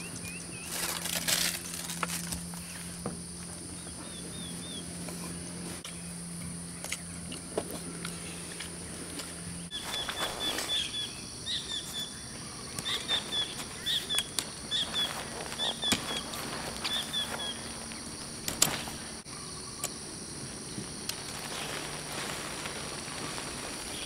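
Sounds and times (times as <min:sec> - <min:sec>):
high insect drone: 0:00.0 - 0:24.0
short chirping calls: 0:09.5 - 0:20.0.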